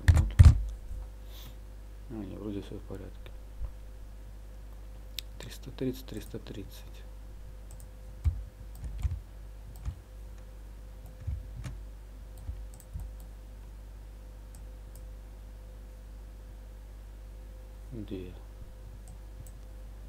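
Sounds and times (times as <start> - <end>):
low electrical hum: 0.0 - 20.0
computer mouse clicks: 7.7 - 11.8, 12.4 - 13.3.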